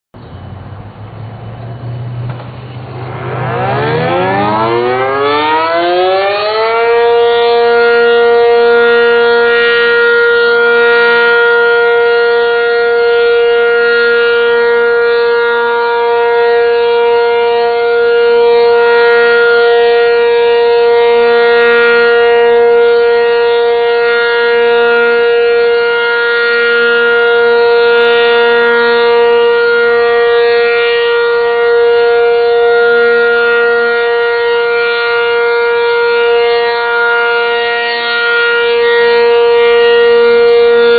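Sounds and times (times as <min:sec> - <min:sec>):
warning siren: 0:01.2 - 0:40.9.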